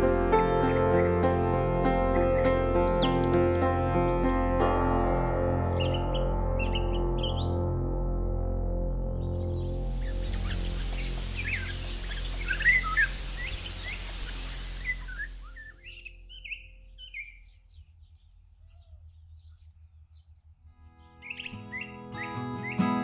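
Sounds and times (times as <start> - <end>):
songbirds chirping: 0.0 - 4.7, 5.4 - 23.0.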